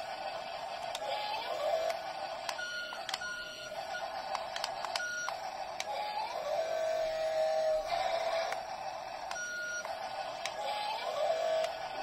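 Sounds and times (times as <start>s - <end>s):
small gear motors whining: 0.0s - 12.0s
plastic gears clicking: 4.2s - 6.0s.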